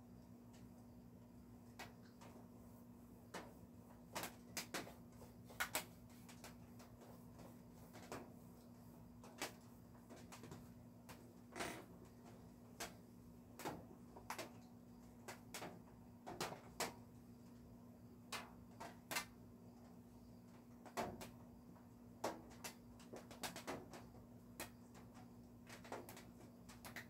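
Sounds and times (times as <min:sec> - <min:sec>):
faint steady hum: 0:00.0 - 0:27.0
raindrops tapping on roof: 0:13.6 - 0:14.6, 0:15.2 - 0:17.0, 0:22.2 - 0:27.0.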